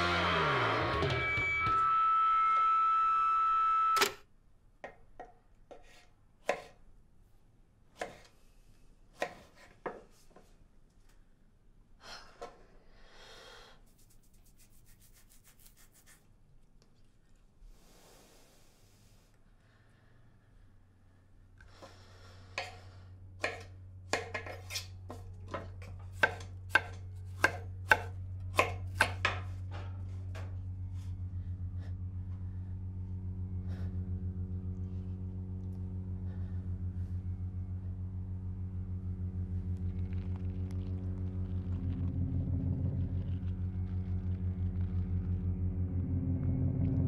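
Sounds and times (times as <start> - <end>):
knife chopping on cutting board: 5.8 - 6.8
low pulsing hum: 24.9 - 47.0.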